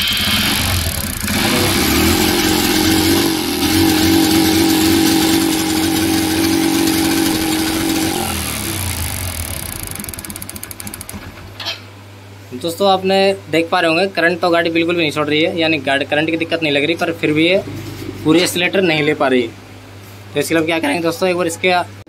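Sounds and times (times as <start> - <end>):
engine cranking on starter: 0.0 - 11.6.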